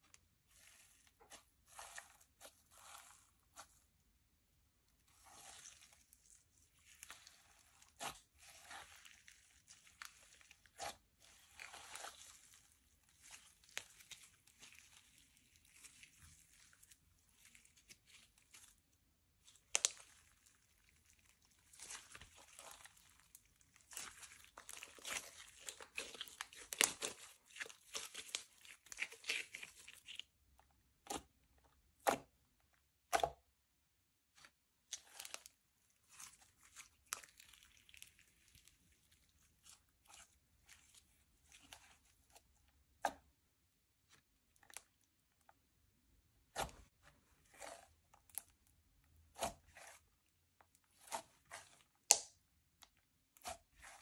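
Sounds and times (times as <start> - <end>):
slime crackling and popping: 19.4 - 30.2, 50.9 - 54.0.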